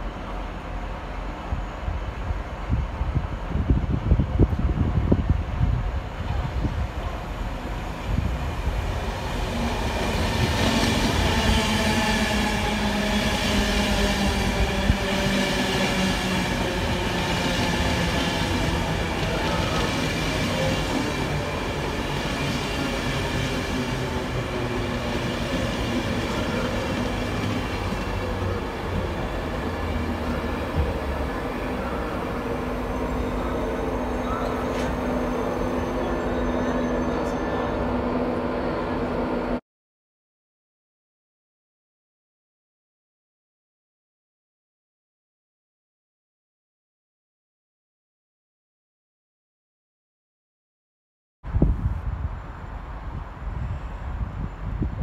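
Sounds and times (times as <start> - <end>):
train wheels rushing on rails: 0.0 - 39.6.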